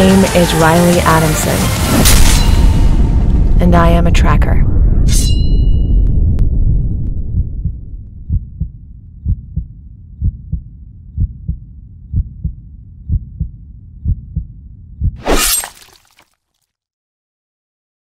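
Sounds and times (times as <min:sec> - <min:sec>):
low rumble: 0:00.0 - 0:15.2
sudden crash: 0:01.6 - 0:03.7
heartbeat thumps: 0:06.2 - 0:15.2.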